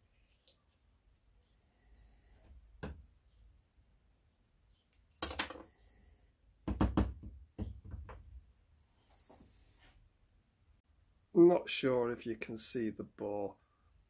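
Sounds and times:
metal parts handled on workbench: 5.2 - 5.7.

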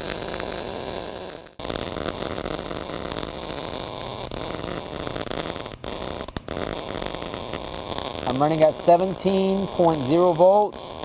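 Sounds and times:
welding arc crackling: 0.0 - 11.0.

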